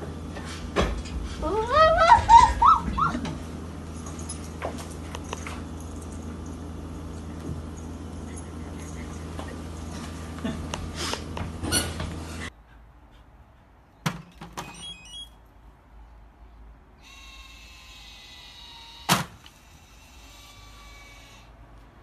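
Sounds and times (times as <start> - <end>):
motor whirring: 17.0 - 21.5.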